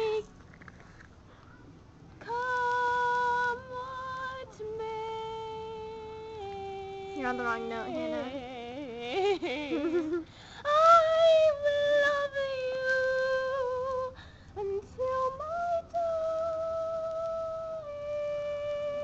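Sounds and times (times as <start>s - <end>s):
woman singing solo: 2.2s - 9.4s.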